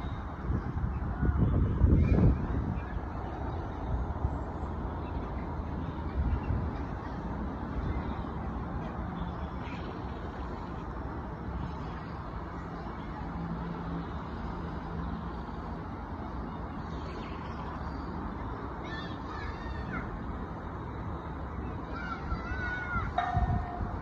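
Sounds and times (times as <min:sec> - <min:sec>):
rushing outdoor noise: 0:00.0 - 0:24.0.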